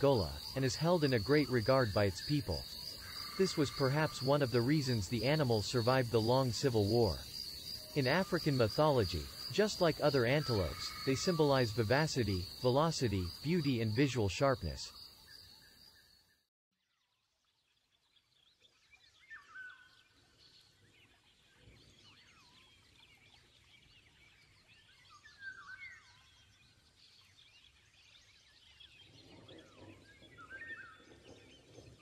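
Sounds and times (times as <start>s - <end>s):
loud bird call: 0.0s - 7.2s, 7.8s - 14.8s
birds chirping and calling: 0.0s - 14.9s
low hiss: 0.0s - 14.9s.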